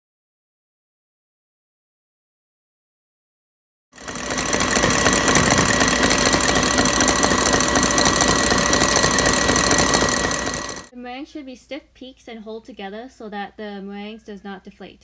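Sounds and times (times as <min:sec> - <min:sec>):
stand mixer whisking: 0:04.0 - 0:10.9.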